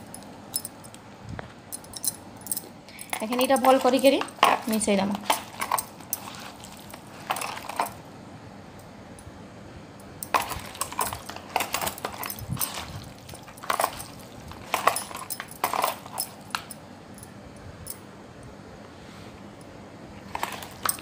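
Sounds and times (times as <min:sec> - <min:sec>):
bangles clinking: 0:00.0 - 0:01.0, 0:01.7 - 0:08.0, 0:10.0 - 0:18.0, 0:20.3 - 0:21.0.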